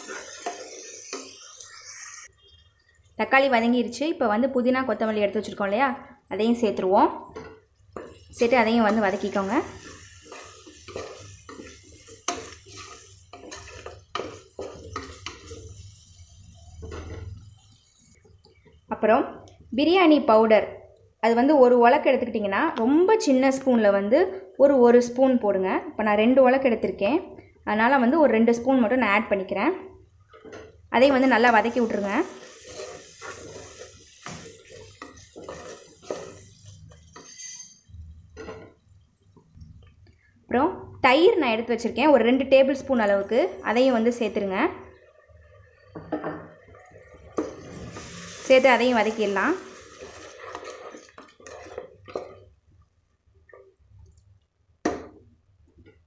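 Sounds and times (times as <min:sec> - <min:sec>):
spoon scraping metal pot: 0:00.0 - 0:02.3, 0:07.3 - 0:18.2, 0:30.3 - 0:38.8, 0:47.2 - 0:52.6.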